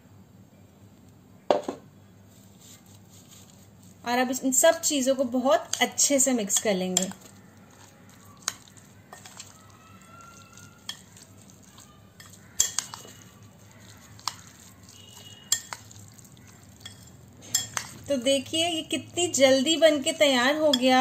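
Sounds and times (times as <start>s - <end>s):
spoon stirring wet mash: 2.3s - 21.0s
spoon clinking against glass: 10.2s - 16.0s, 16.8s - 18.1s.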